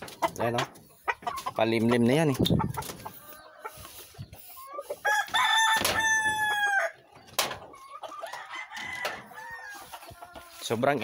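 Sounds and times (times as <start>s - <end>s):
chickens calling: 0.0s - 11.0s
rooster crowing: 5.0s - 7.0s, 8.3s - 9.9s.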